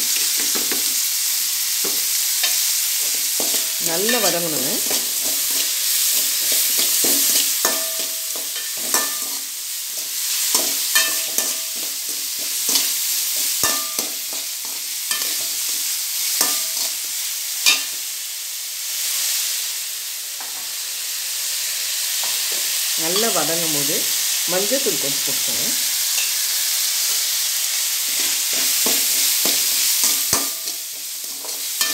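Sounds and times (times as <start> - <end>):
vegetables sizzling in hot oil: 0.0 - 31.9
metal spatula scraping and knocking pan: 1.8 - 15.7, 28.1 - 31.9.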